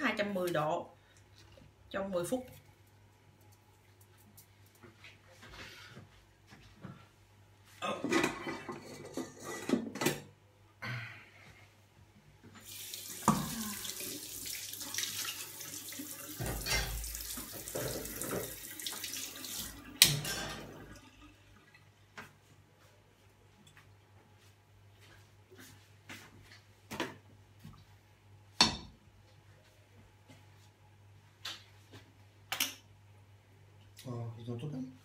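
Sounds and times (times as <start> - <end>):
utensils clattering: 8.1 - 10.2
tap running into sink: 16.2 - 20.2.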